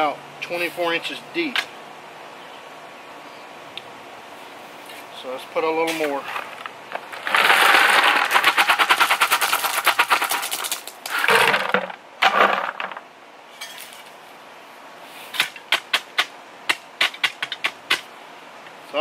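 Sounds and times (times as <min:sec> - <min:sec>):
post hole digger clicking on gravel: 0:05.8 - 0:13.1, 0:15.3 - 0:18.1
gravel pouring from bucket: 0:06.0 - 0:13.0.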